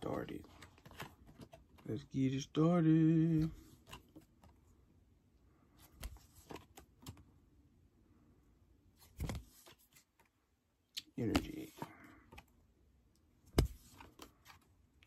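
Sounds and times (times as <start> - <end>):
trading cards rustling and clicking: 0.0 - 2.1, 5.8 - 7.2, 11.0 - 12.5, 13.5 - 14.7.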